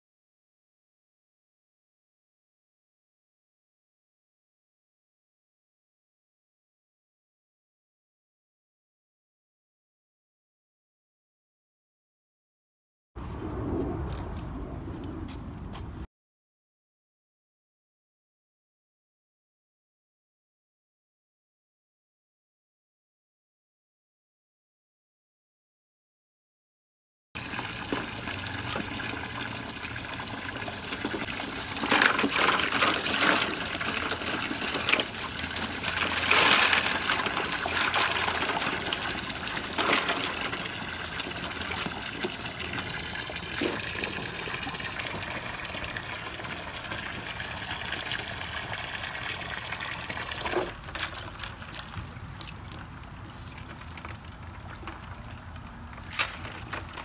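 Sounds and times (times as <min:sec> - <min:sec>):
water pouring into paddling pool: 0:27.4 - 0:57.0
water splashing and sloshing: 0:27.4 - 0:57.0.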